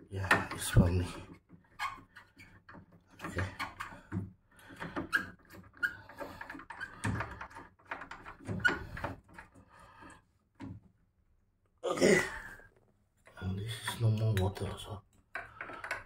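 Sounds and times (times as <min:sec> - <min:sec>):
plastic knocks rubs and scrapes: 0:00.2 - 0:11.0.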